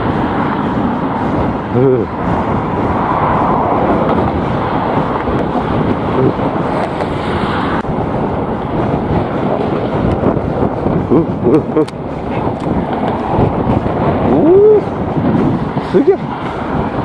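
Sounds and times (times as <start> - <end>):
road traffic: 0.0 - 17.0
wind blowing across microphone: 0.0 - 17.0.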